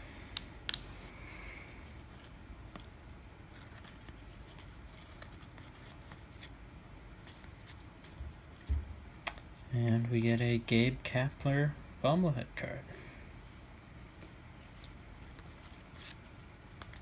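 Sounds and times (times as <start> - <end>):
cards sliding against each other: 15.4 - 16.2.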